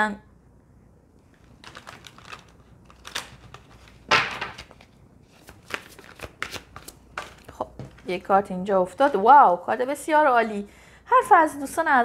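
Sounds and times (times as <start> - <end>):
cards being shuffled: 1.3 - 8.2.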